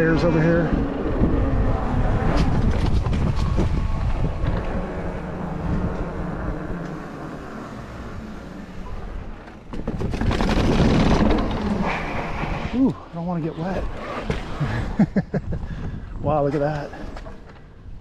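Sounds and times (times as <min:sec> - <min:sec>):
bike tyres rumbling over pavement: 0:00.0 - 0:12.8
wind buffeting microphone: 0:00.0 - 0:18.0.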